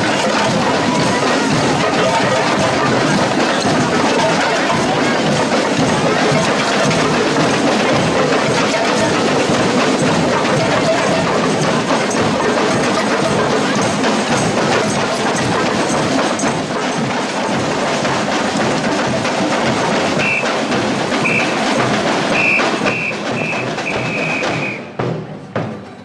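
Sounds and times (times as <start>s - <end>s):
percussion band drumming: 0.0s - 26.0s
whistle blasts: 20.2s - 20.6s, 21.2s - 21.6s, 22.3s - 25.0s.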